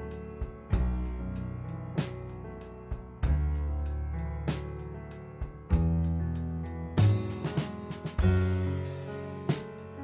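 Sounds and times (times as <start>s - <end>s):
sharp drum hit: 7.0s - 8.8s.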